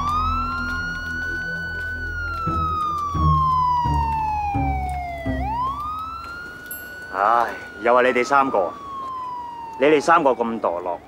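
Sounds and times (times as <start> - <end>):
background music with bass: 0.0 - 5.9
siren wailing: 0.0 - 11.0.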